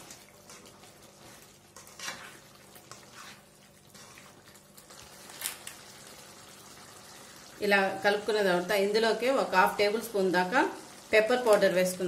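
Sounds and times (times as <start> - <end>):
faint sizzle of cooking gravy: 0.0 - 12.0
spatula scraping metal pan: 1.8 - 3.4.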